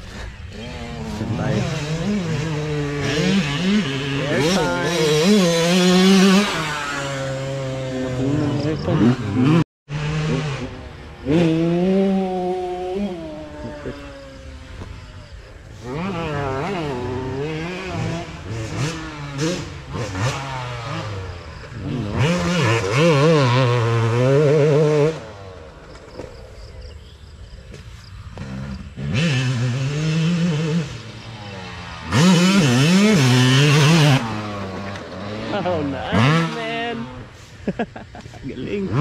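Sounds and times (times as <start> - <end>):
dirt bike engines revving: 0.0 - 39.0.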